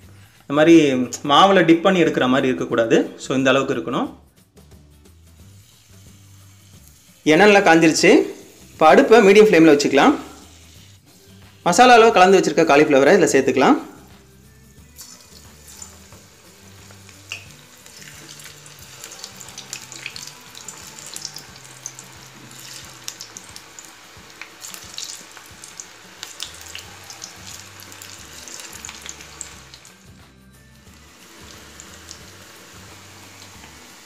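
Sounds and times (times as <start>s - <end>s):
deep-frying sizzle with crackling pops: 5.2s - 9.2s, 14.9s - 34.0s.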